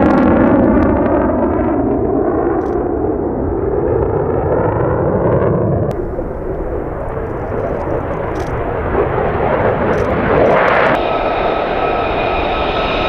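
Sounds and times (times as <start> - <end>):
jet engine rushing: 0.0 - 13.0
steady high whine: 5.9 - 13.0.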